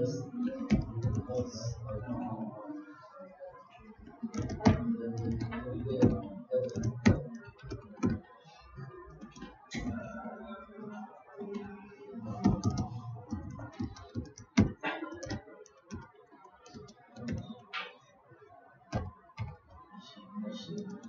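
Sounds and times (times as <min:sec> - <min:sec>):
typing on computer keyboard: 0:00.0 - 0:02.2, 0:04.0 - 0:08.2, 0:12.3 - 0:17.7, 0:18.9 - 0:19.8, 0:20.7 - 0:21.0.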